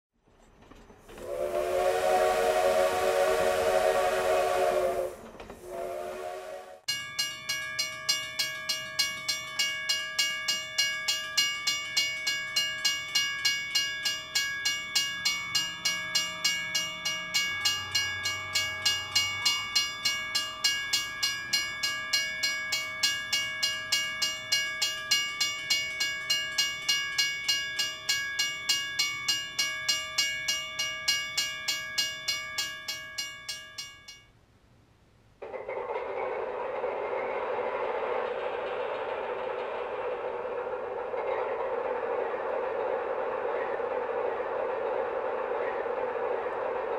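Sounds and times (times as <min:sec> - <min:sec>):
rapid metallic clanging: 0:06.9 - 0:34.2.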